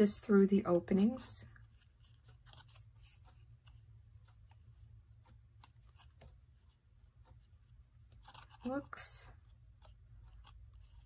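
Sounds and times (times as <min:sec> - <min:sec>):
light ticks of cardstock: 0:01.0 - 0:11.0
paper rustling: 0:01.5 - 0:04.7.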